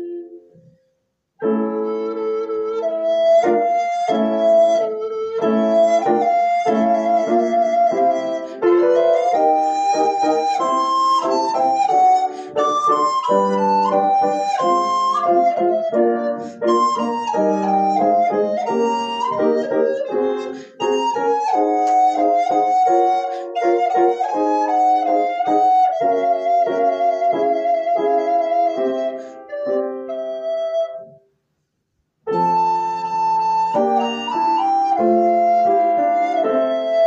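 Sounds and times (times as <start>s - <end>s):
recorder melody: 0.0s - 31.2s, 32.3s - 37.0s.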